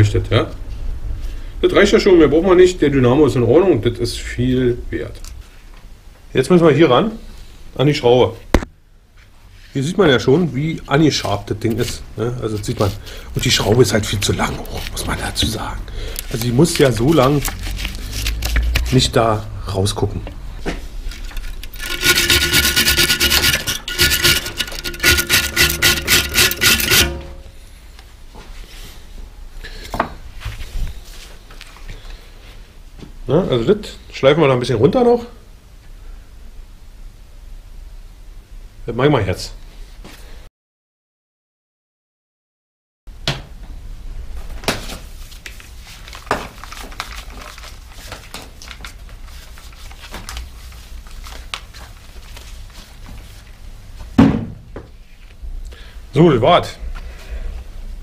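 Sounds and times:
low steady hum: 0.0 - 29.7
metal scraping on bicycle mudguard: 21.1 - 27.5
workshop tools clicking and knocking: 21.1 - 27.5.

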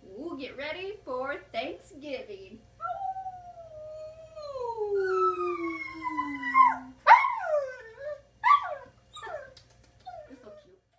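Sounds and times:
woman howling: 2.8 - 7.0
dog howling: 2.8 - 9.5.

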